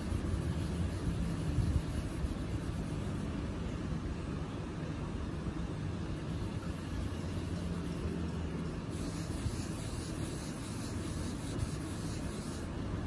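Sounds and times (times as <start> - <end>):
rubbing strokes on skin: 0.0 - 3.3, 8.9 - 12.7
steady low hum: 0.0 - 13.0.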